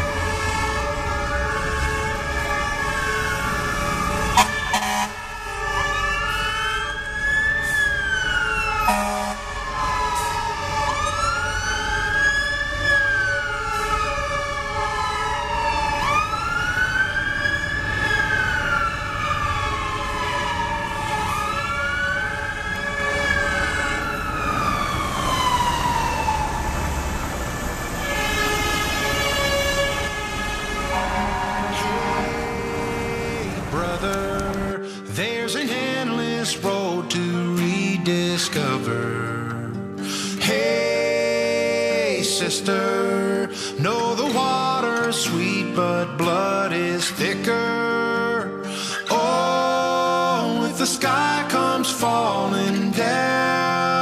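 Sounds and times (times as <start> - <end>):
steady siren tones: 0.0 - 34.1
truck engines rumbling: 0.0 - 47.7
fire truck sirens wailing: 0.0 - 54.0.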